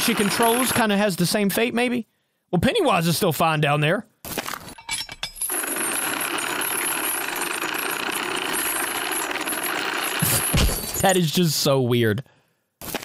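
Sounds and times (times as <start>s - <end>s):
mechanical buzzing rattle: 5.5s - 10.6s.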